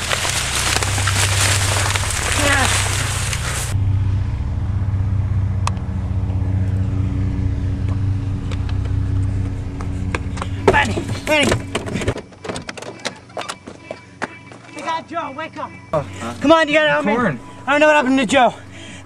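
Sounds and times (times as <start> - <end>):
low engine-like hum: 0.0 - 12.2, 15.9 - 19.0.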